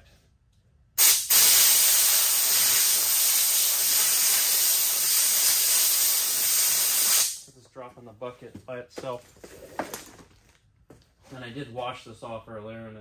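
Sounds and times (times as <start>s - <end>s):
compressed air blow gun hissing: 1.0s - 7.5s.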